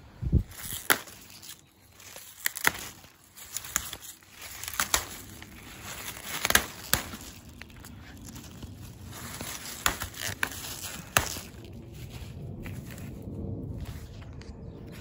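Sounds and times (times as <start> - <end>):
leaves rustling: 0.0 - 15.0
plant stems snapping: 0.4 - 13.2.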